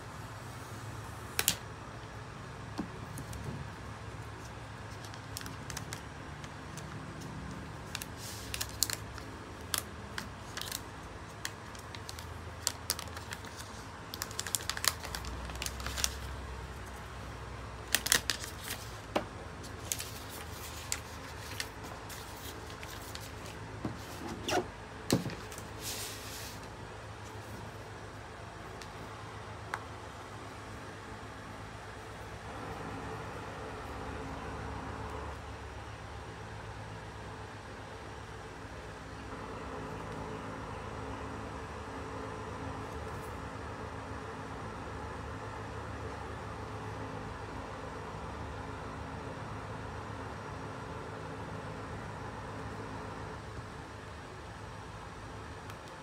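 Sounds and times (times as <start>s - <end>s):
steady low hum: 0.0s - 56.0s
paper crinkling: 4.1s - 17.0s, 17.8s - 24.5s, 25.1s - 26.7s.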